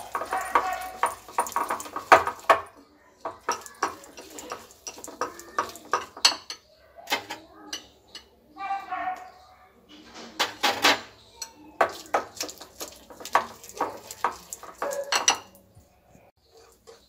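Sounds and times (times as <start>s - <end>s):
whisk beating batter in glass bowl: 0.0s - 6.4s, 11.8s - 15.4s.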